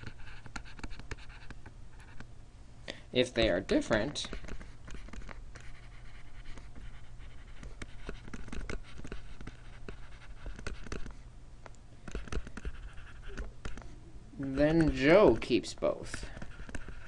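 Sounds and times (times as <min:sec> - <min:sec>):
steady low hum: 0:00.0 - 0:17.0
stylus tapping on tablet screen: 0:12.1 - 0:13.8.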